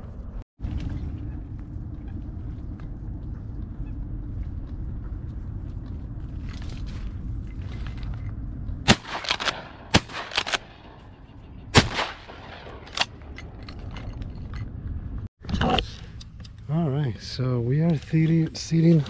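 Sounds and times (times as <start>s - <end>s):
shotgun blasts: 8.8s - 11.0s, 11.7s - 13.2s
sharp cracks: 8.9s - 11.0s, 11.7s - 13.4s.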